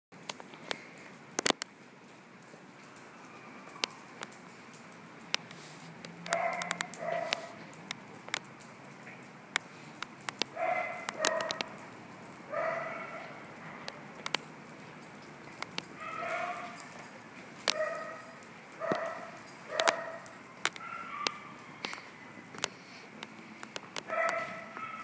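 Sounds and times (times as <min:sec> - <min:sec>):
sharp clicks: 0:03.7 - 0:08.7, 0:09.5 - 0:12.0, 0:13.9 - 0:14.5, 0:15.4 - 0:16.0, 0:18.9 - 0:24.4
dog barking: 0:06.3 - 0:07.6, 0:10.5 - 0:11.8, 0:12.5 - 0:14.0, 0:16.0 - 0:16.9, 0:17.7 - 0:21.8, 0:24.1 - 0:25.0.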